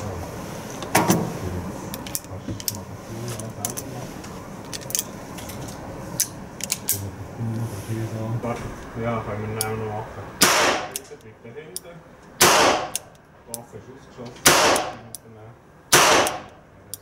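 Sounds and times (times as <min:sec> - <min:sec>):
cartridges clicking into revolver: 0:11.8 - 0:13.2.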